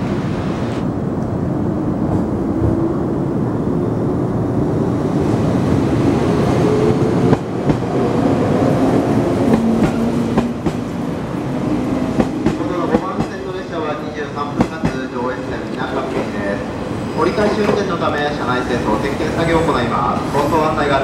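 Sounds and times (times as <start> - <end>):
train rumble: 0.0 - 21.0
train wheel clacks: 9.4 - 11.0, 12.2 - 13.5, 14.5 - 15.1.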